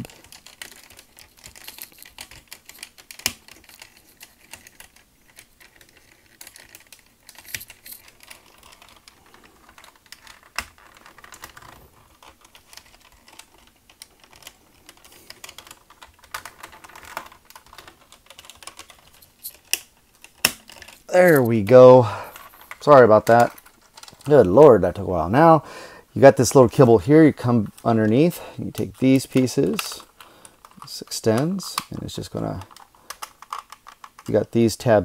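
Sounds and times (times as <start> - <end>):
sharp plastic snaps: 0.0 - 21.0
plastic toy parts clicking: 0.0 - 21.4, 28.7 - 34.3.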